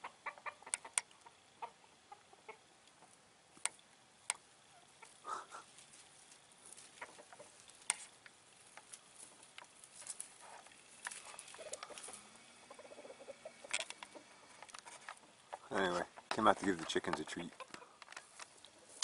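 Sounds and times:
fowl clucking: 0.0 - 3.2, 6.9 - 7.7, 10.4 - 16.4, 17.5 - 18.0.

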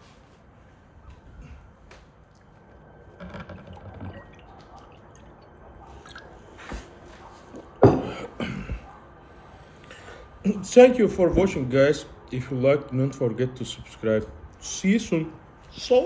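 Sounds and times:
liquid trickling into glass: 3.2 - 6.4.

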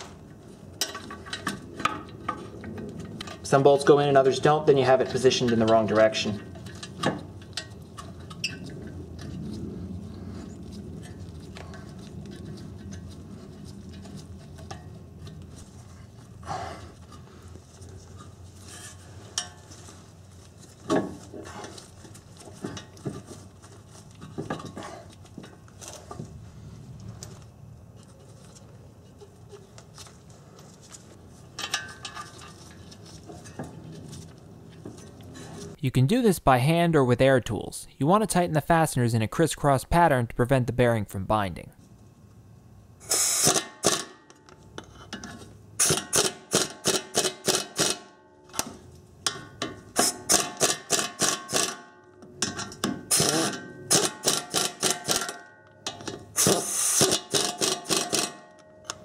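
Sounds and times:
low steady hum: 0.0 - 43.2.

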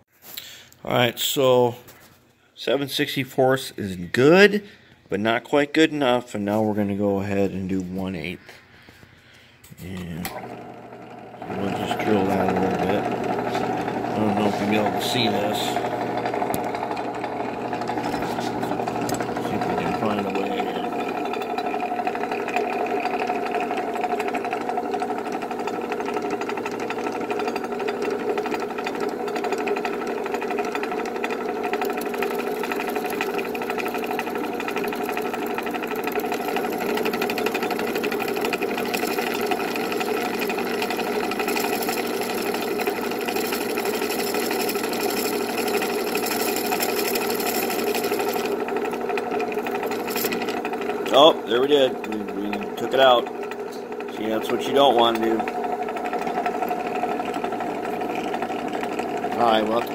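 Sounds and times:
drill press motor hum: 7.9 - 59.9
drill bit cutting hiss: 31.9 - 49.0.

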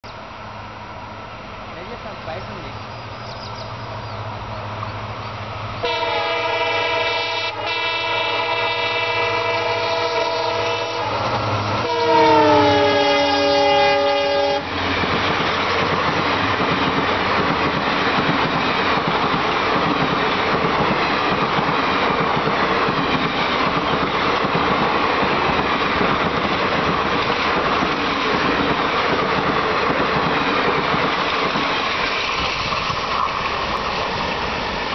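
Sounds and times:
train coaches rushing on rails: 0.1 - 34.9
locomotive air horn: 5.8 - 14.7.

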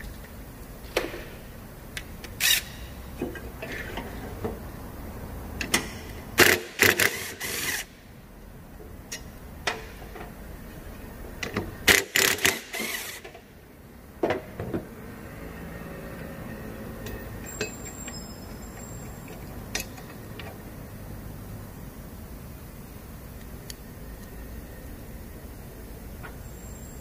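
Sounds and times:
tools and metal parts clattering: 17.1 - 20.5.

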